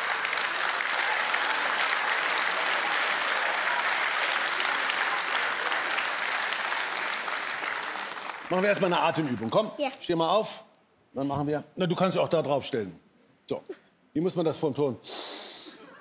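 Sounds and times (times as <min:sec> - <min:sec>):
studio audience clapping: 0:00.0 - 0:09.8.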